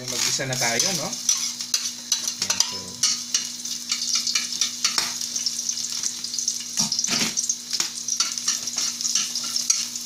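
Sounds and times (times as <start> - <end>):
spatula scraping a wok: 0.0 - 5.3, 8.2 - 10.0
garlic sizzling in hot oil: 0.0 - 10.0.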